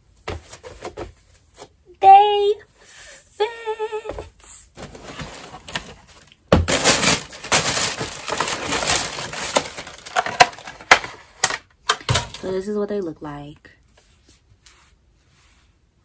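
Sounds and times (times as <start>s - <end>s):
person humming: 3.4s - 4.3s
packaging crinkling and rustling: 4.8s - 12.4s.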